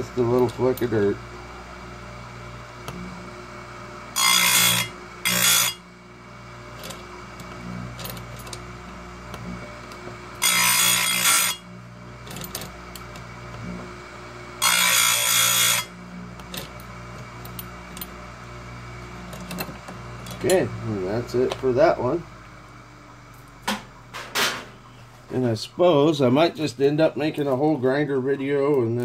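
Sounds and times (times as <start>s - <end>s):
grinder wheel humming: 0.0s - 29.0s
grinding wheel on steel chain: 4.2s - 5.8s, 10.3s - 11.6s, 12.2s - 13.1s.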